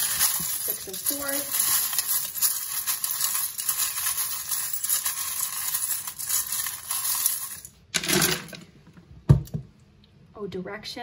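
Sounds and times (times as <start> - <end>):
metal charms jingling in bowl: 0.0 - 7.7.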